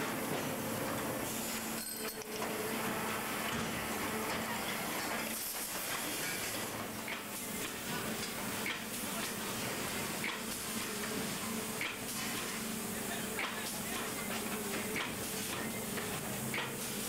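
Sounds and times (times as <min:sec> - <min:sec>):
machinery hiss: 0:05.0 - 0:15.7.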